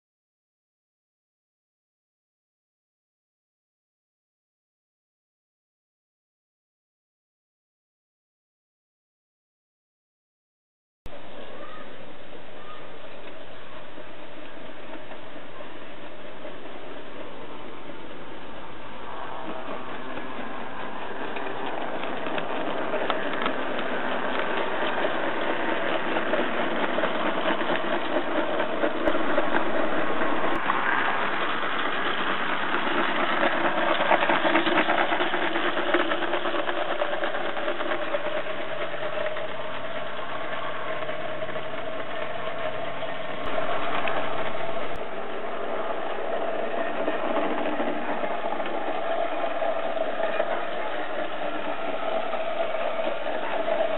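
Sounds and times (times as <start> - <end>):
model locomotive running: 11.1 - 53.9.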